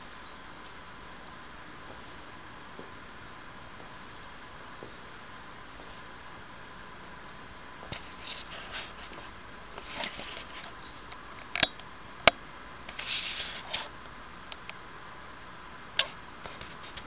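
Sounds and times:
steady hiss: 0.0 - 17.0
camera handling rustles: 7.9 - 11.7.

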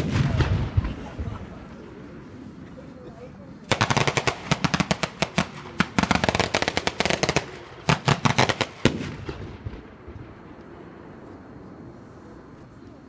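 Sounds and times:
firecrackers cracking: 0.0 - 2.0, 3.6 - 10.8.

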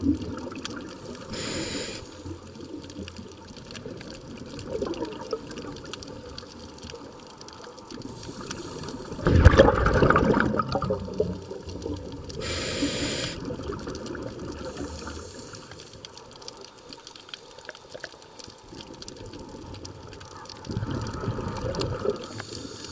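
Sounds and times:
short high hiss: 1.3 - 2.3, 12.4 - 13.4
regulator exhaled bubbles rushing: 8.1 - 15.2.

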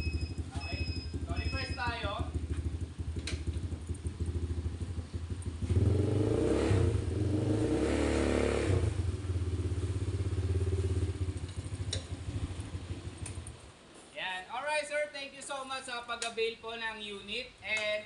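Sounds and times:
atv engine idling and revving: 0.0 - 13.8.

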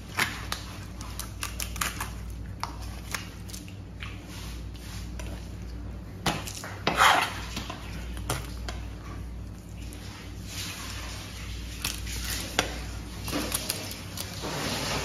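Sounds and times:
steady low hum: 0.0 - 15.0
knife scraping across board: 6.8 - 7.7.

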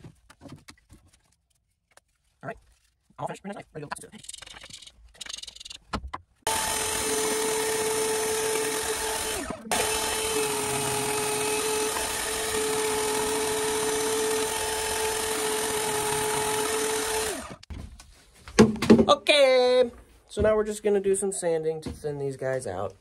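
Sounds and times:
bandsaw cutting wood: 6.5 - 17.7.

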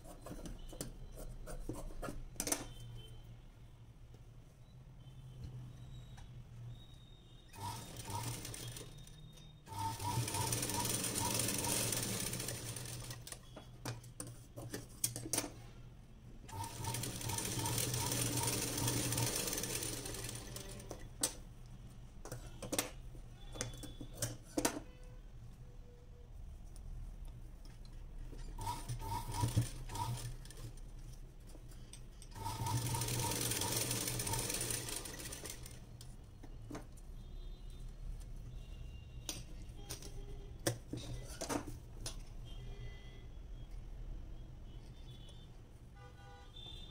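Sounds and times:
sewing machine stitching: 7.5 - 13.4, 16.5 - 21.1, 28.6 - 30.8, 32.3 - 35.8.

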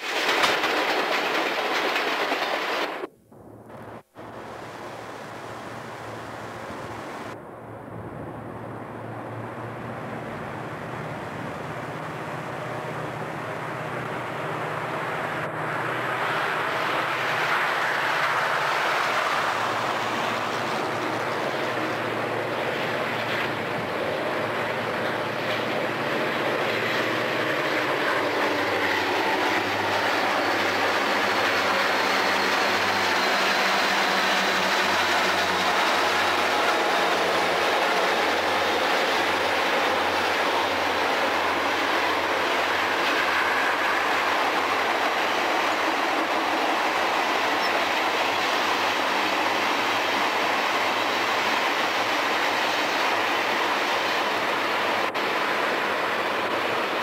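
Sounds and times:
diesel locomotive engines running: 3.7 - 57.0.

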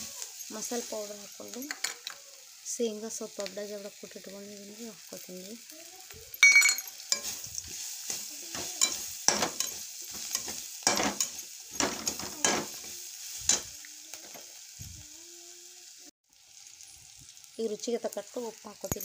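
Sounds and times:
food sizzling in hot oil: 0.0 - 19.0
wooden spatula scraping pan: 7.0 - 14.4.

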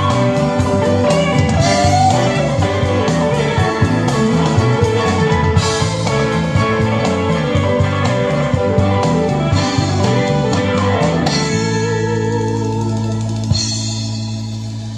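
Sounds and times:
country band instrumental: 0.0 - 14.9
guitar: 0.0 - 14.9
moving bass line: 0.0 - 14.9.

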